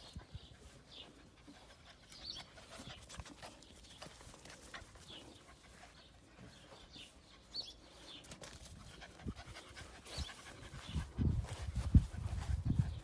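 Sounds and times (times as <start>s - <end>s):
puppy panting: 0.1s - 7.9s, 8.7s - 13.0s.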